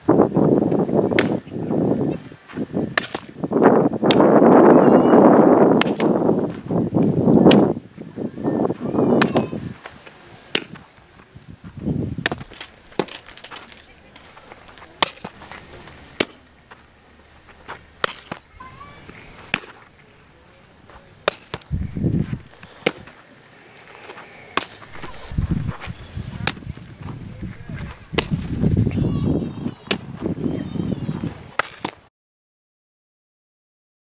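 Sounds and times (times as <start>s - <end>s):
balls popping into leather gloves: 20.9s - 23.2s, 28.1s - 28.5s.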